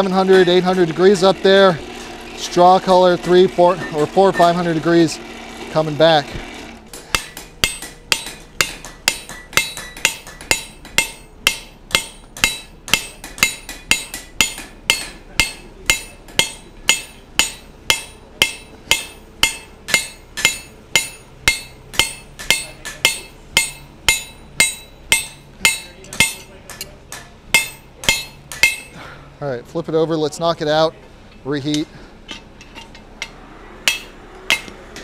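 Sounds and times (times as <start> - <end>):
hammer ringing on steel: 7.0 - 29.0, 33.2 - 34.7.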